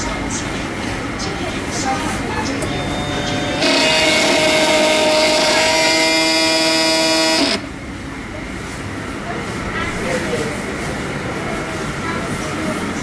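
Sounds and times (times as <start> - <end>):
vending machine whine: 0.0 - 13.0
low machine tone: 2.3 - 7.8.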